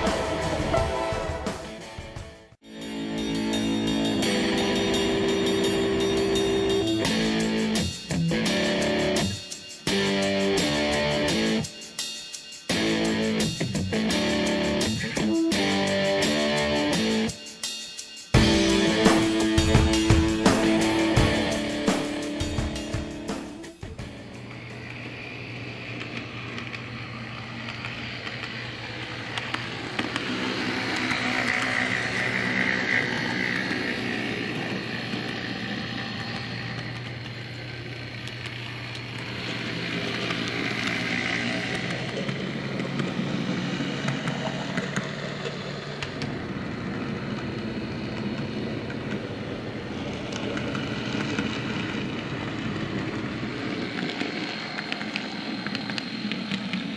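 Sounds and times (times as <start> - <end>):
guitar chords music: 0.0 - 11.7, 12.7 - 17.3, 18.4 - 24.5
model streetcar motor hum: 2.9 - 11.7, 18.4 - 56.9.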